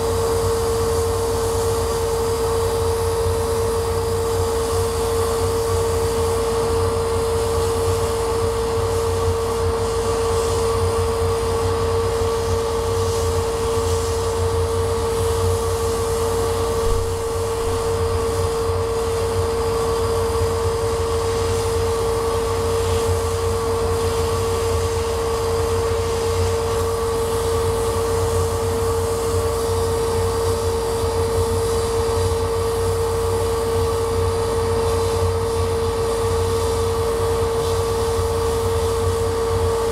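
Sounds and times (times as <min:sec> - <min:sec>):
laser cutter drone and whine: 0:00.0 - 0:39.9.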